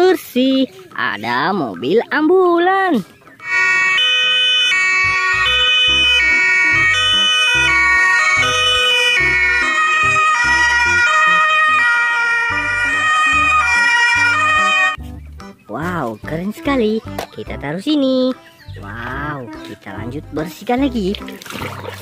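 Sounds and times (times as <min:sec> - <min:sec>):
ambulance two-tone sirens: 0:03.4 - 0:15.0.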